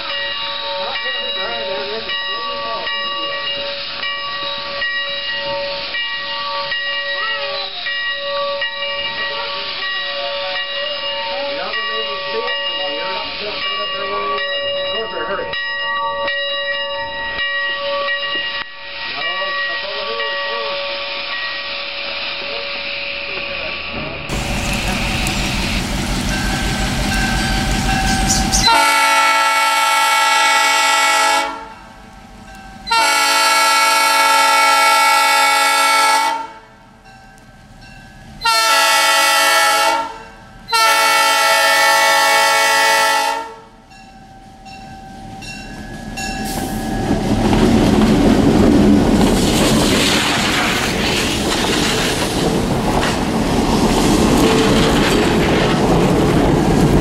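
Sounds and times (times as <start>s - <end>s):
train wheels clattering on rails: 24.0s - 31.1s, 45.4s - 57.0s
low engine rumble: 24.3s - 28.7s
train air horn blowing: 27.7s - 31.9s, 32.9s - 36.7s, 38.4s - 43.7s.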